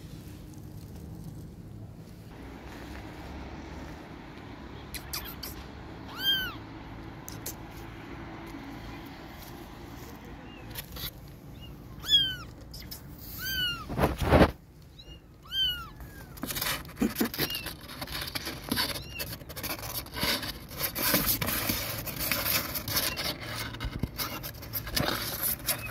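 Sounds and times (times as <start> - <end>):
kitten scratching cardboard box: 0.4 - 25.9
kitten mewing: 4.8 - 8.0, 10.4 - 17.7.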